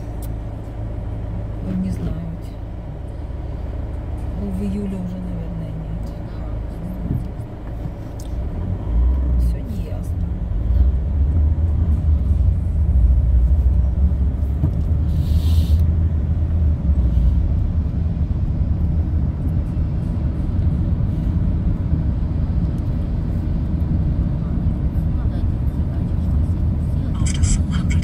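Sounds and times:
car engine and tyre rumble: 0:00.0 - 0:28.0
brief hiss: 0:15.1 - 0:15.8.

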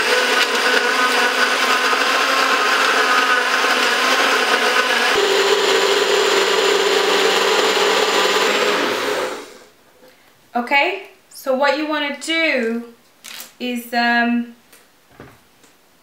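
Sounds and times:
blender motor blending ice: 0:00.0 - 0:09.7.

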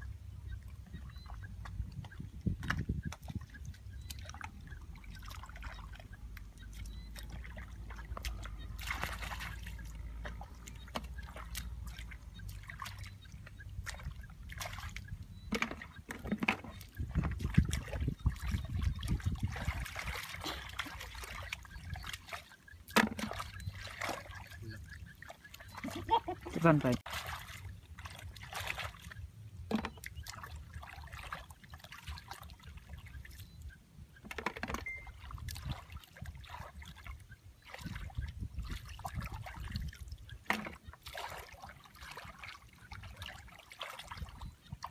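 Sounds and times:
splashing in shallow muddy water: 0:00.0 - 0:44.9
hands splashing in muddy water: 0:05.3 - 0:13.2, 0:25.3 - 0:29.1.

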